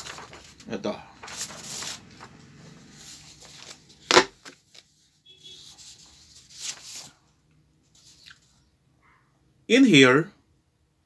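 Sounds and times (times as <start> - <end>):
paper rustling on a desk: 0.0 - 7.2.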